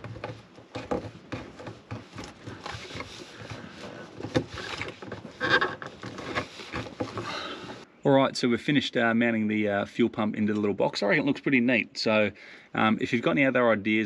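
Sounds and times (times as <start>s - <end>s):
plastic enclosure clicks and scraping: 0.0s - 7.8s.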